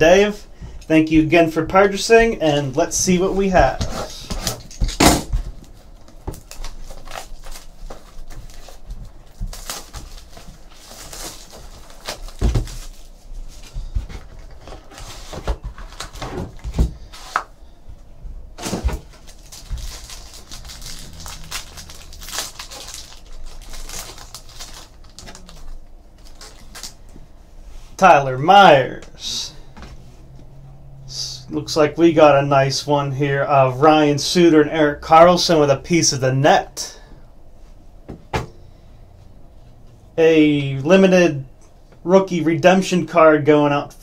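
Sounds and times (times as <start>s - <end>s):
cardboard and plastic wrap rustling: 3.0s - 17.6s, 18.6s - 27.3s
foil pack crinkling and tearing: 5.6s - 13.8s, 18.6s - 27.1s.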